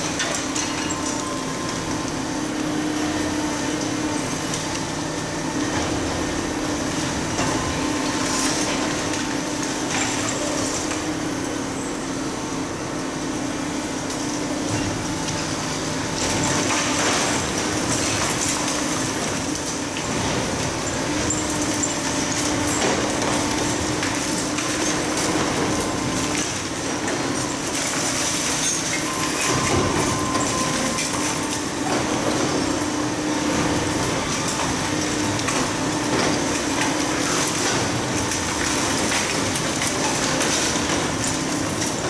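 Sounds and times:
falling concrete debris clatter: 0:00.0 - 0:02.1, 0:16.0 - 0:42.0
hydraulic crusher breaking concrete: 0:00.0 - 0:11.8, 0:13.6 - 0:42.0
excavator engines running: 0:00.0 - 0:42.0.

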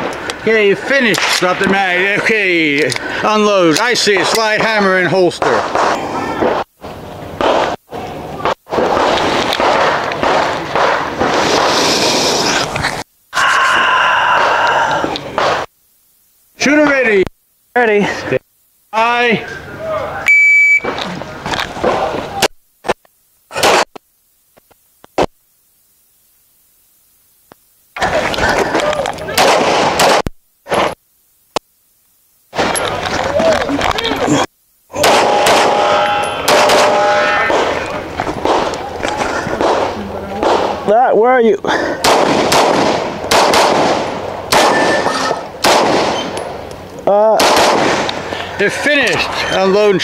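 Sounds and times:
rapid pistol shots: 0:04.0 - 0:06.7, 0:07.4 - 0:07.8, 0:08.4 - 0:11.8, 0:15.4 - 0:15.7, 0:23.5 - 0:24.0, 0:29.3 - 0:31.0, 0:35.0 - 0:38.8, 0:39.5 - 0:40.9, 0:42.0 - 0:46.6, 0:47.4 - 0:48.3.

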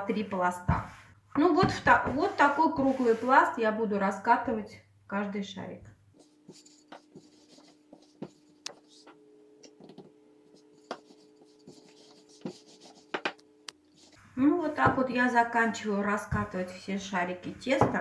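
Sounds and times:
rolling pin rubbing dough: 0:01.6 - 0:03.5, 0:06.2 - 0:15.1
faint steady hum: 0:03.6 - 0:18.0
rolling pin knocking counter: 0:12.5 - 0:13.4.

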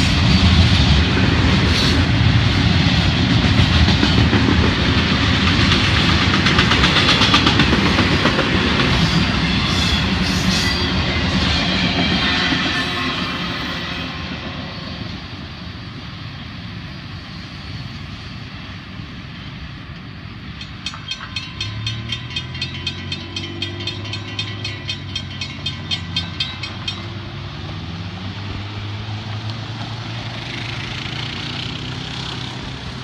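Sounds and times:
freight train rumble: 0:00.0 - 0:33.0
crossing warning bell ringing: 0:06.8 - 0:14.7, 0:20.4 - 0:28.0
car engines revving: 0:27.2 - 0:33.0.

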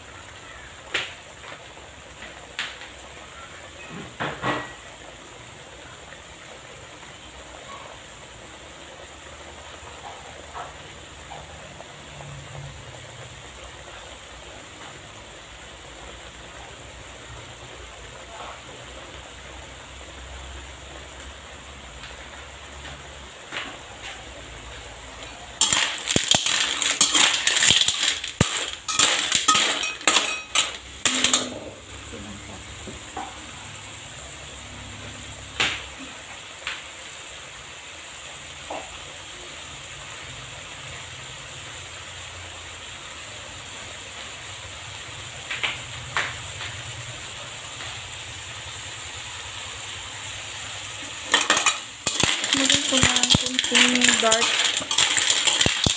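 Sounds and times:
faint cooking hiss: 0:00.0 - 0:55.9
clam shells clinking on metal wok: 0:25.5 - 0:31.8, 0:51.0 - 0:55.9.

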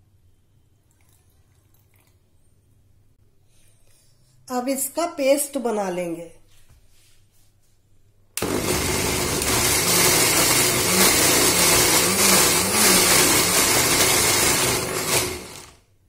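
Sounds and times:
mixer grinder running: 0:08.4 - 0:15.8.

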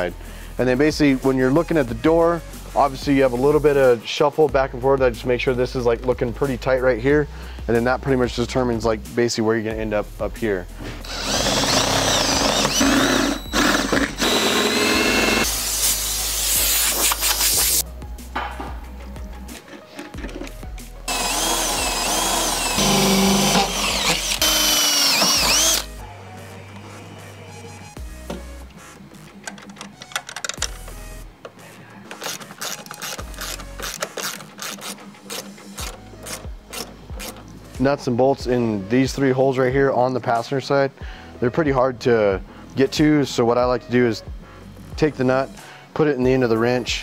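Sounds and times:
cordless drill boring through sheet metal: 0:11.0 - 0:16.8, 0:21.1 - 0:25.9
ratchet wrench clicking: 0:32.1 - 0:37.4.

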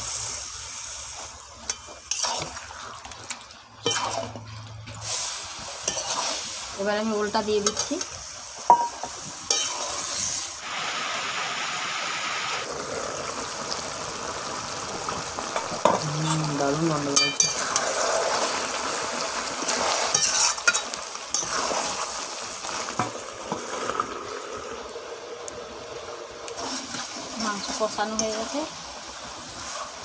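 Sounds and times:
meat sizzling in oil: 0:00.0 - 0:30.0
steel spoon scraping a pan: 0:01.6 - 0:02.6, 0:03.8 - 0:10.6, 0:16.2 - 0:18.5, 0:19.7 - 0:22.1, 0:26.6 - 0:28.6.

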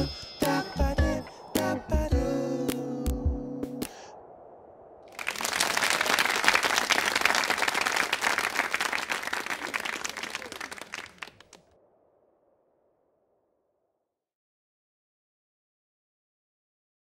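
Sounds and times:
audience applause: 0:05.1 - 0:11.6.

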